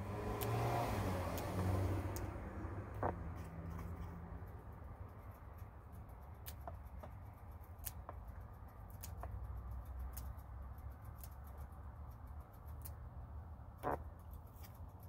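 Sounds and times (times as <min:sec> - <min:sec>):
flower petals plucked clicking: 0:01.3 - 0:02.4, 0:06.4 - 0:11.8.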